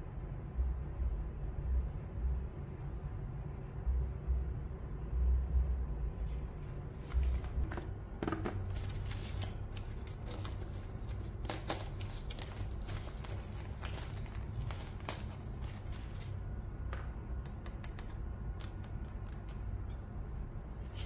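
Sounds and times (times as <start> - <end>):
low steady hum: 0.0 - 21.0
plastic wrapping rustling: 8.6 - 16.5.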